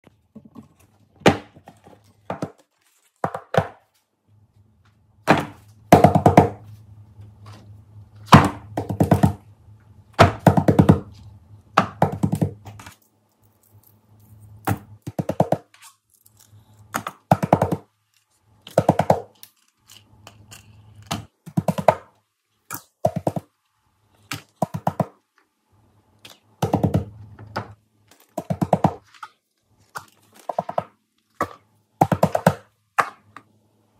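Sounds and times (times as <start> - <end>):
fidget toys thudding and tapping: 5.2 - 6.6, 8.3 - 9.4, 10.2 - 11.1, 11.8 - 13.0, 14.6 - 15.7, 16.9 - 17.9, 18.6 - 19.4, 21.0 - 22.2, 22.8 - 23.5, 26.6 - 29.1, 30.4 - 33.4.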